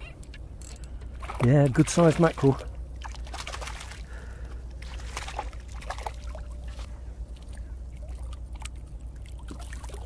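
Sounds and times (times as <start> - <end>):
water sloshing and dripping: 0.2 - 10.0
fish splashing at water surface: 3.0 - 10.0.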